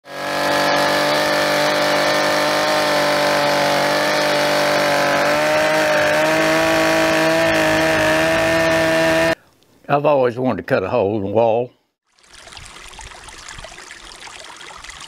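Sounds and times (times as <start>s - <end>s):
chainsaw cutting through log: 0.0s - 9.4s.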